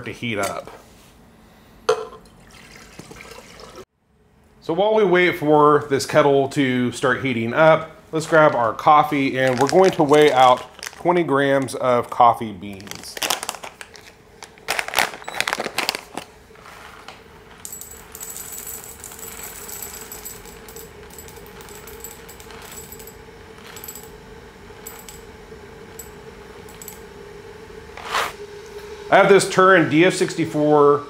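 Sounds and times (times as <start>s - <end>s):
steady hum: 4.0s - 31.0s
coffee beans pouring into metal cup: 8.2s - 11.8s, 16.6s - 24.2s
paper bag rustling: 8.2s - 17.6s.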